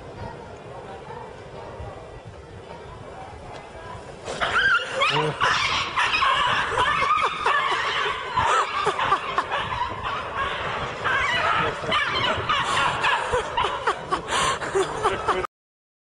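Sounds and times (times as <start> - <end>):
people laughing: 4.8 - 15.5.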